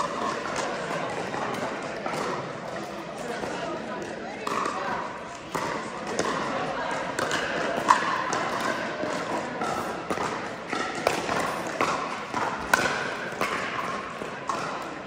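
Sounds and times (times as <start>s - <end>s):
paddles hitting plastic ball: 3.4s - 15.0s.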